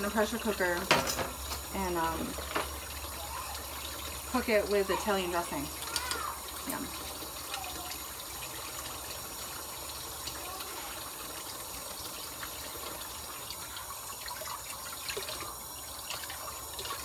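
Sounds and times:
tap running into sink: 0:00.1 - 0:03.1, 0:04.3 - 0:07.6.

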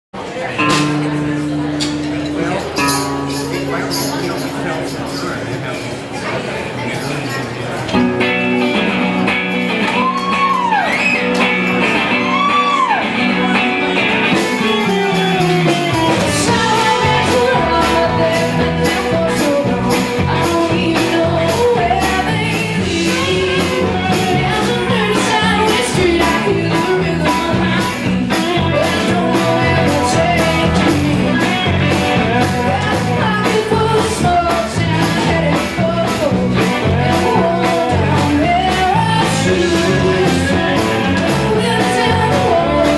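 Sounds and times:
electric guitars: 0:00.2 - 0:42.9
drums and bass beat: 0:00.6 - 0:05.5, 0:08.0 - 0:42.9
woman singing: 0:15.2 - 0:42.9.

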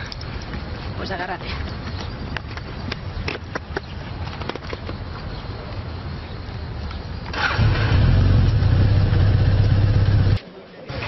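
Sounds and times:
motorcycle engine rumbling: 0:04.6 - 0:11.0.

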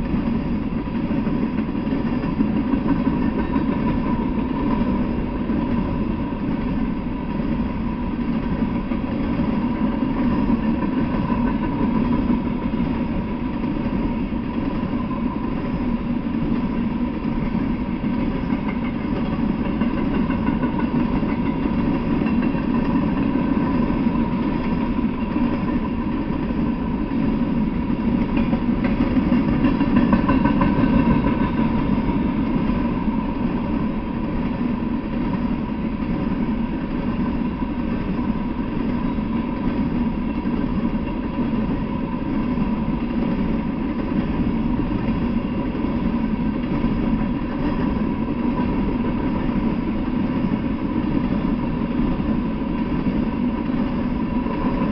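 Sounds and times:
train wheels rumbling on rail: 0:00.0 - 0:54.9.

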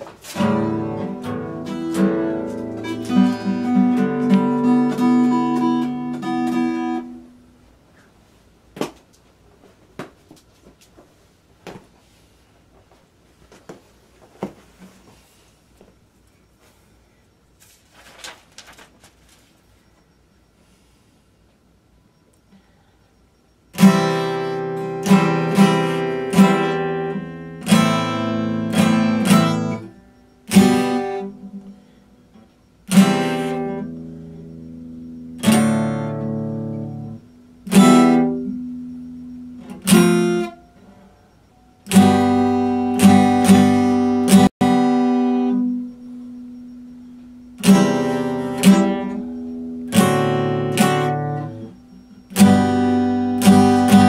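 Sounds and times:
acoustic guitar chords: 0:00.0 - 0:08.0, 0:23.6 - 0:54.0.

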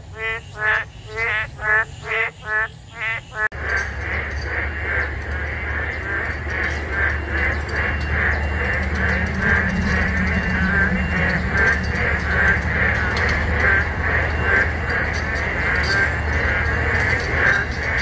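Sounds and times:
frogs calling: 0:00.0 - 0:18.0
steady low rumble: 0:03.5 - 0:18.0.

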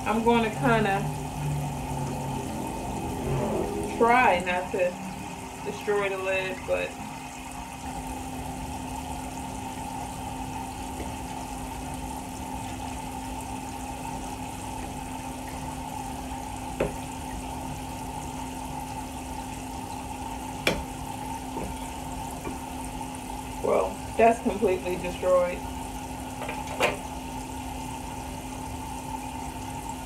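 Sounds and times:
low hum: 0:00.0 - 0:07.5
water running from tap: 0:00.0 - 0:30.0.

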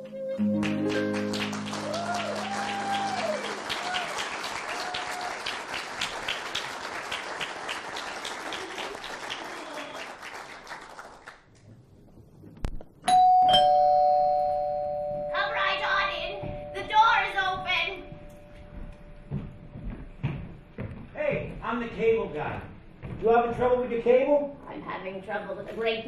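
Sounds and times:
music chord: 0:00.0 - 0:03.2
people whooping: 0:00.0 - 0:05.7
audience applauding: 0:00.4 - 0:11.7
two-note doorbell chime: 0:13.1 - 0:18.7.

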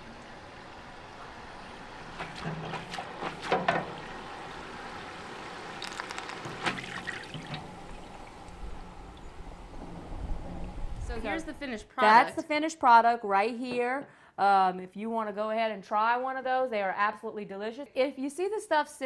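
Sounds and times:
oil sizzling in deep fryer: 0:00.0 - 0:10.9.

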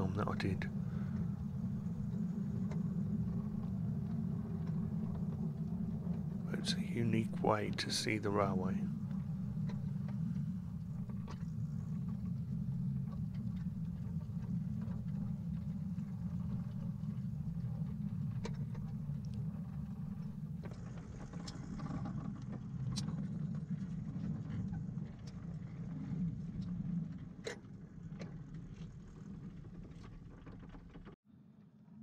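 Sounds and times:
steel wheels rumbling on track: 0:00.0 - 0:22.5.

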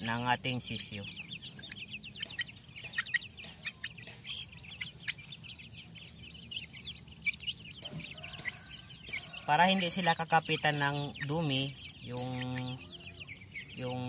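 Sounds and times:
chicks peeping: 0:00.0 - 0:14.0.

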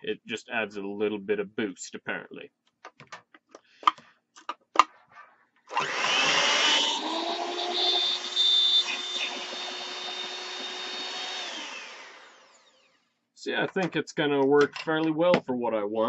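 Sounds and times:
hand mixer motor whirring: 0:05.7 - 0:13.0.

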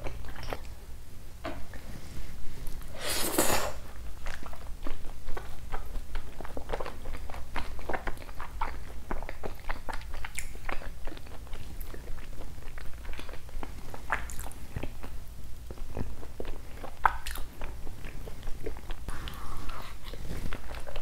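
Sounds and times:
chewing mouth clicks and smacks: 0:04.2 - 0:19.0.

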